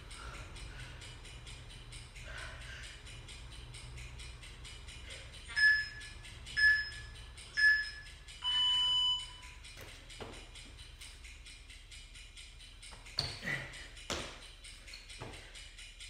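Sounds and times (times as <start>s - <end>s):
background music: 0.0s - 16.0s
long low beep: 5.5s - 9.4s
short electronic beeps: 5.5s - 9.4s.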